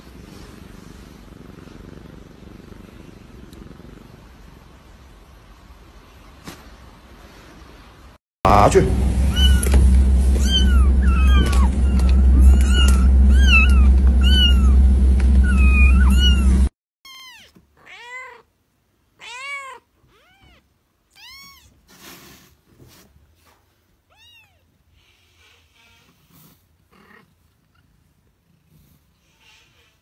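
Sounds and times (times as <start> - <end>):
steady low hum: 8.5 - 16.7
kittens mewing: 10.4 - 14.8, 15.4 - 18.5.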